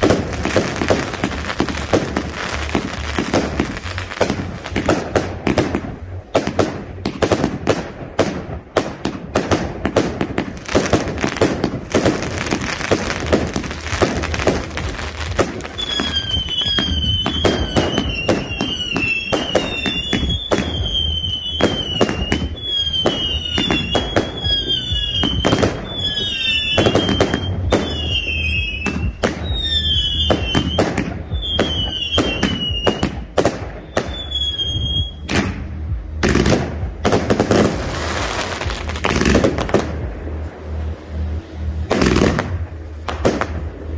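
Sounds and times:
fireworks bangs and crackle: 0.0s - 43.9s
warbling firework whistle: 10.7s - 35.6s.

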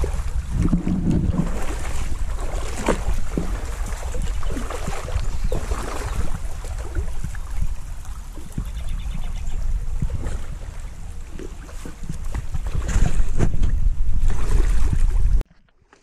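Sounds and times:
wind rumbling on microphone: 0.0s - 15.4s
river water splashing and gurgling: 0.0s - 16.0s.

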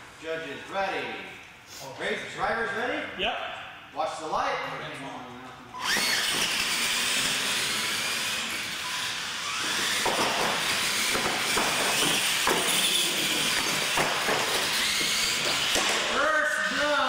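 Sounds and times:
toy truck drivetrains whining: 5.8s - 15.8s
knocks and clatters over ramps: 10.0s - 16.0s.

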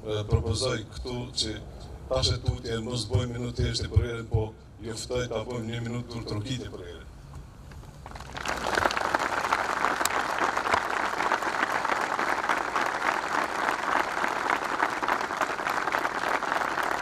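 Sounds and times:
crowd applauding: 8.1s - 17.0s.

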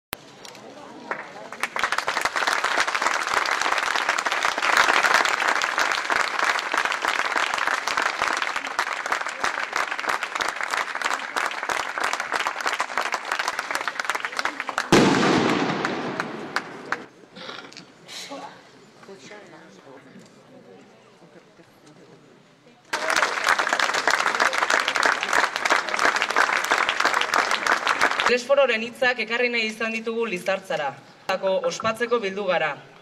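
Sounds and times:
crowd applauding: 1.1s - 17.1s, 22.9s - 28.4s.

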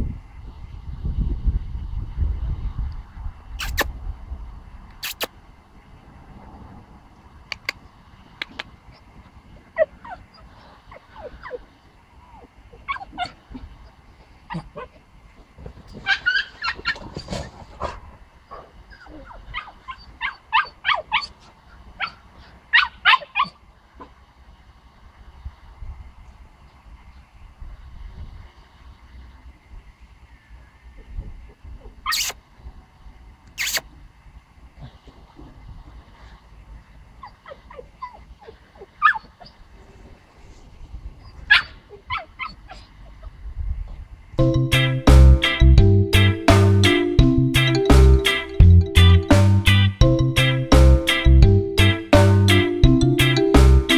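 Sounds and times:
puppy yipping and whimpering: 9.8s - 13.7s, 14.5s - 15.0s, 16.0s - 17.1s, 18.5s - 21.4s, 22.0s - 23.6s, 31.8s - 32.4s, 37.2s - 39.7s, 41.2s - 43.3s
dog barking in high-pitched yips: 16.0s - 17.0s, 19.0s - 21.3s, 22.0s - 23.6s, 32.0s - 32.4s, 39.0s - 39.3s, 41.5s - 42.8s.

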